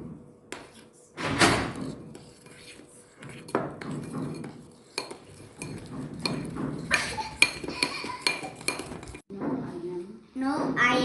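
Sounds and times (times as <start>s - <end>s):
metal spoon scraping a bowl: 1.7s - 9.3s.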